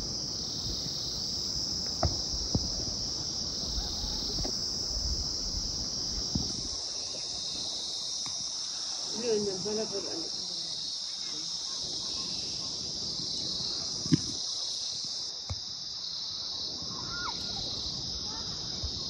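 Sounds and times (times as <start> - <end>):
insects chorus: 0.0 - 19.0.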